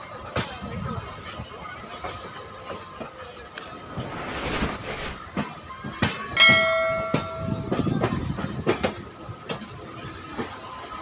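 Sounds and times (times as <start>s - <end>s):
train wheels clacking: 5.3s - 9.8s.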